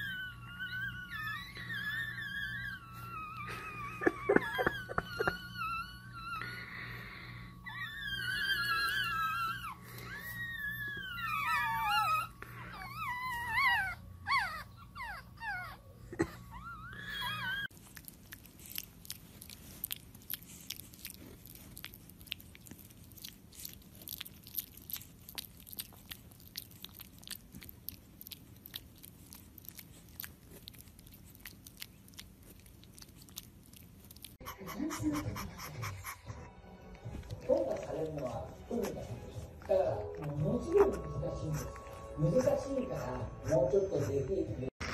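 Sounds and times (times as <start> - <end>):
puppies squeaking and whining: 0.0 - 44.9
puppy chewing on chew stick: 17.2 - 44.9.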